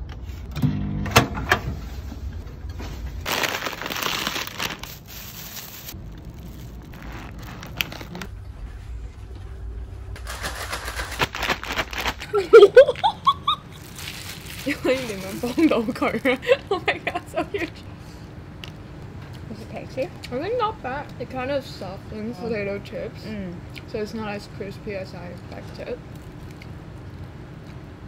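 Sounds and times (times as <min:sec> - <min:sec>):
foil bag crinkling: 0:03.2 - 0:08.3, 0:10.2 - 0:12.8, 0:13.6 - 0:16.6.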